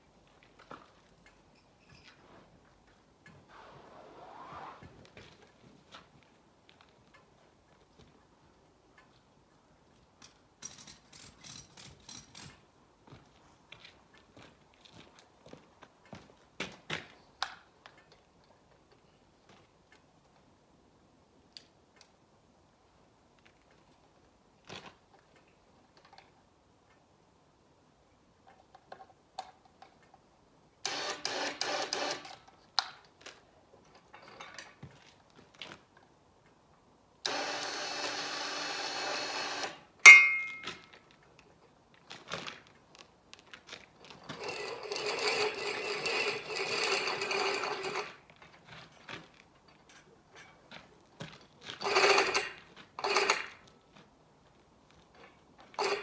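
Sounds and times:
winch whirring: 37.2s - 40.6s.

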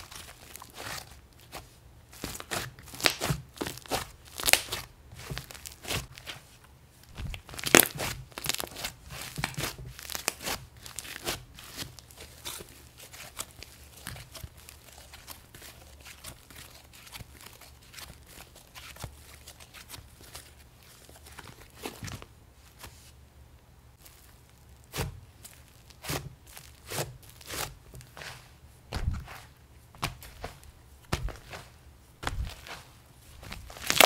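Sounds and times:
slime crackling and snapping: 2.2s - 6.1s, 7.1s - 12.6s, 33.5s - 34.0s.

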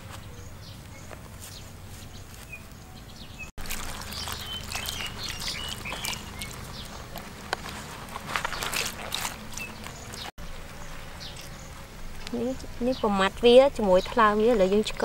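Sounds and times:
water splashing: 3.6s - 7.8s
leaves crackling: 3.6s - 13.3s.

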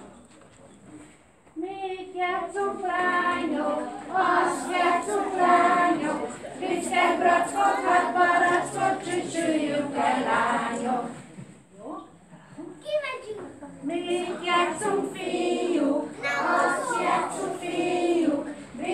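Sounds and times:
children singing together: 1.8s - 11.2s, 13.9s - 18.9s.

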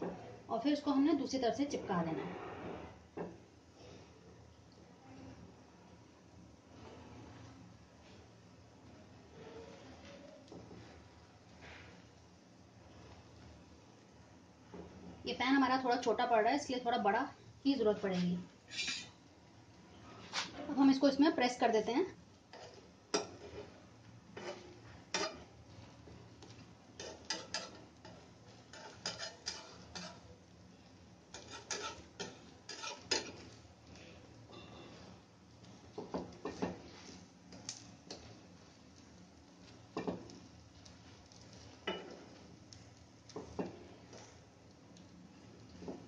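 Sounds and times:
spatula scraping a frying pan: 18.7s - 19.2s, 20.1s - 20.6s, 22.5s - 25.8s, 26.4s - 30.3s, 31.2s - 38.5s, 39.6s - 42.6s.

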